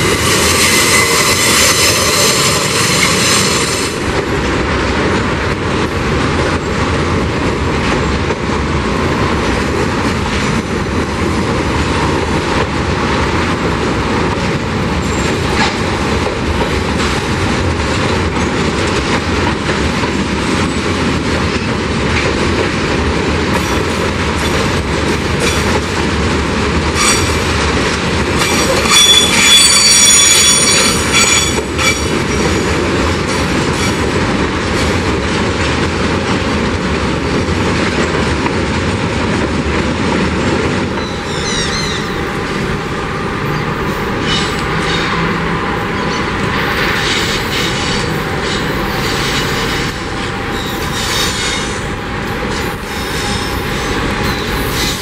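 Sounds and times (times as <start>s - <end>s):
train wheel squeal: 0.0s - 4.0s, 15.0s - 15.4s, 27.0s - 27.4s, 28.4s - 32.6s, 41.0s - 42.2s, 43.5s - 45.2s, 50.5s - 51.8s, 52.5s - 55.0s
steel wheels rolling on rail: 0.0s - 55.0s.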